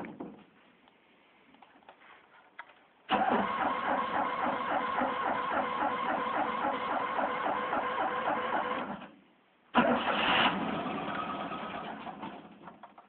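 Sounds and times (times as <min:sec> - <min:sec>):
engine cranking by starter: 0:03.1 - 0:09.1, 0:09.7 - 0:13.0
engine sudden burst: 0:09.8 - 0:12.6.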